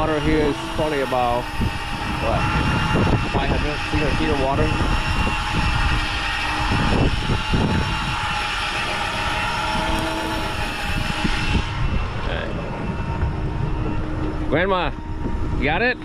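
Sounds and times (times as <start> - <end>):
boat engine hum: 0.0 - 16.0
wind on microphone: 0.0 - 16.0.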